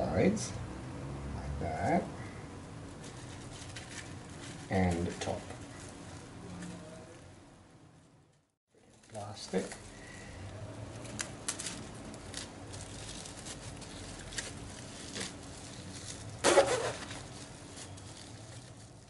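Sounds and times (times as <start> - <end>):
plastic cling film crinkling: 2.9 - 6.8, 8.8 - 19.0.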